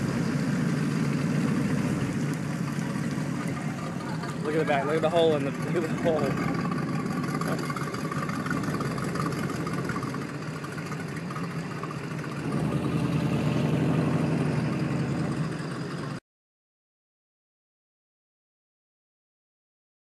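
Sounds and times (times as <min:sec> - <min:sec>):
motorboat engine idling: 0:00.0 - 0:13.4, 0:14.3 - 0:16.2.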